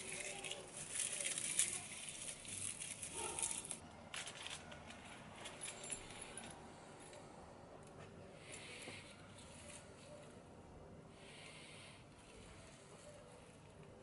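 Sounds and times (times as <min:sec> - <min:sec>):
plant leaves rustling and crackling: 0:00.0 - 0:05.8.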